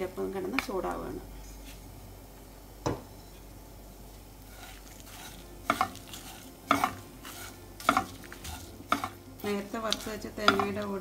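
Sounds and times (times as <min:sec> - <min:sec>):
faint sizzle: 0:00.0 - 0:11.0
spatula scraping a pan: 0:04.4 - 0:09.2.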